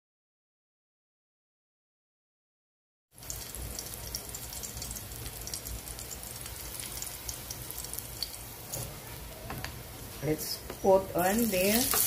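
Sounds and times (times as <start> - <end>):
garlic sizzling in oil: 3.2 - 12.0.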